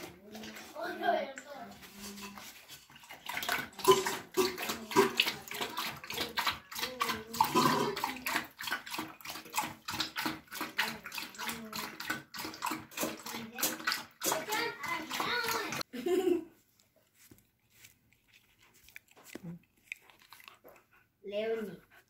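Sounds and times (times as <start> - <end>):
puppy chomping and licking: 2.2 - 15.9, 17.7 - 22.0.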